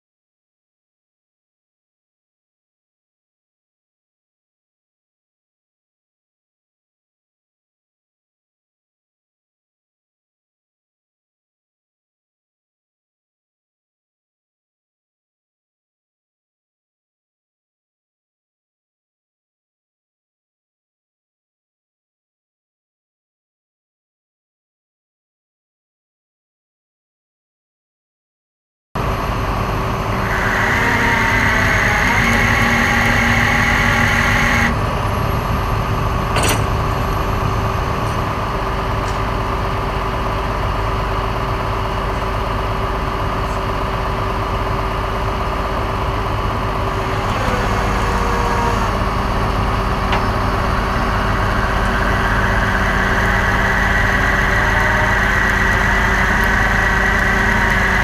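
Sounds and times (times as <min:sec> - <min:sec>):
truck engine running: 0:29.0 - 0:58.0
winch whine: 0:29.0 - 0:58.0.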